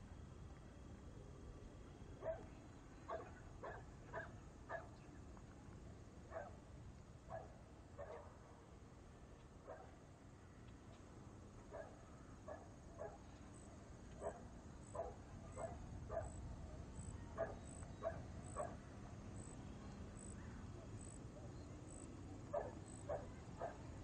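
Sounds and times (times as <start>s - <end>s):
low steady background noise: 0.0s - 24.0s
dog barking: 2.2s - 2.5s, 3.1s - 5.0s, 6.3s - 6.6s, 7.3s - 8.3s, 9.7s - 9.9s, 11.7s - 13.2s, 14.2s - 16.4s, 17.4s - 18.8s, 22.5s - 23.9s.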